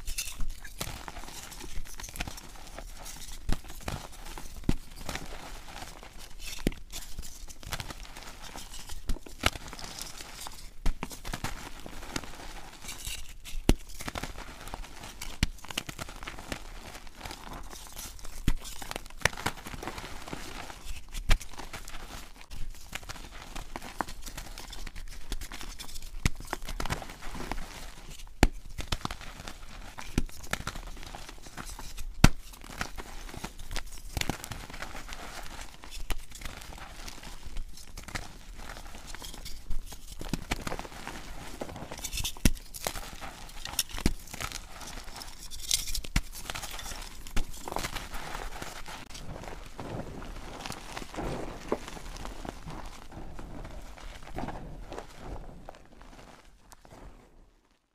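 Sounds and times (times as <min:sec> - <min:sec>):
chalk crunching and crackling: 0:00.0 - 0:57.8.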